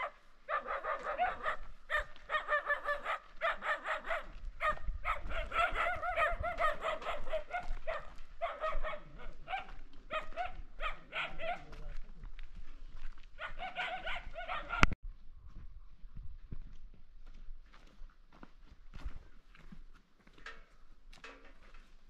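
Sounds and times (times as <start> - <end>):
dog yipping: 0.0 - 11.7, 13.4 - 15.0.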